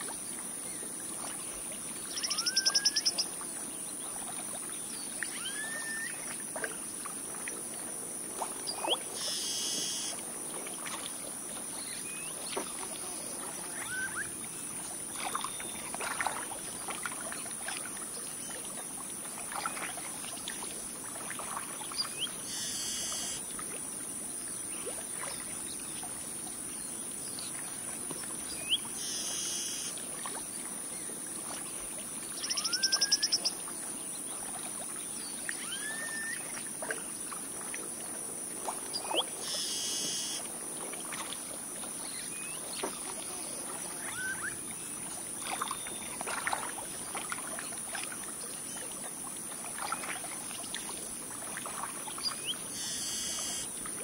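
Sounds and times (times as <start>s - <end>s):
bird chirps and whistles: 2.2s - 3.1s, 5.3s - 6.1s, 13.8s - 14.3s, 35.6s - 36.4s
high-pitched insect drone: 9.2s - 10.2s, 22.5s - 23.4s, 29.0s - 29.9s, 39.4s - 40.4s, 52.8s - 53.7s.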